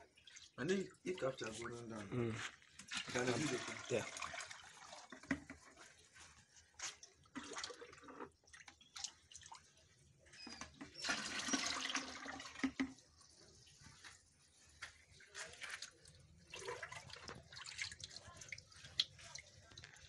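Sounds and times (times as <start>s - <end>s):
water splashing and pouring: 0.0s - 10.0s, 10.8s - 20.0s.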